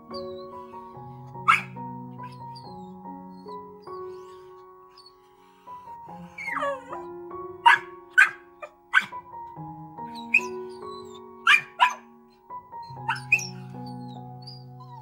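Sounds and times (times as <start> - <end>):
background music: 0.0 - 15.0
dog yelp: 0.1 - 9.2, 10.1 - 15.0
dog barking: 1.4 - 2.7, 6.3 - 9.3, 10.2 - 12.1, 13.0 - 13.7.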